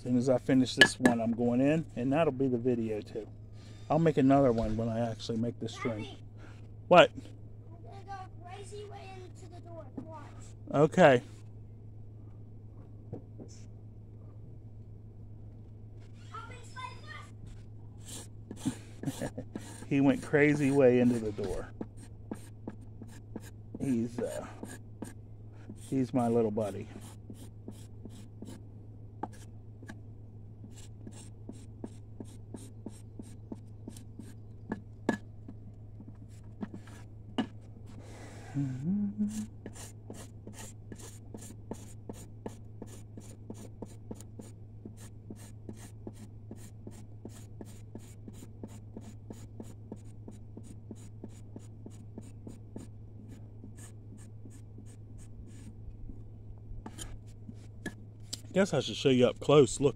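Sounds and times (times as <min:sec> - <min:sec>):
knife scraping leaves on wood: 0:18.0 - 0:28.6.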